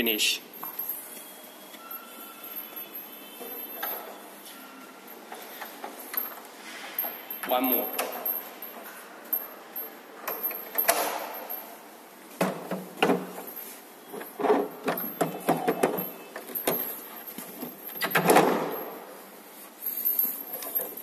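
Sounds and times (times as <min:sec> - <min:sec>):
metal clacks of cabinets: 0:14.1 - 0:18.8.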